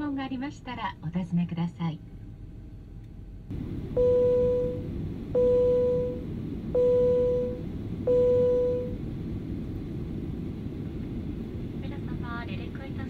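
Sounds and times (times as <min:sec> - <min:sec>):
airliner cabin rumble: 0:02.2 - 0:13.0.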